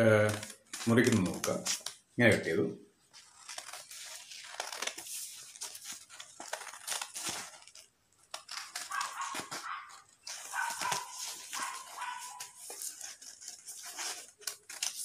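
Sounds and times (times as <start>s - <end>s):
scissors cutting paper: 3.2s - 15.0s.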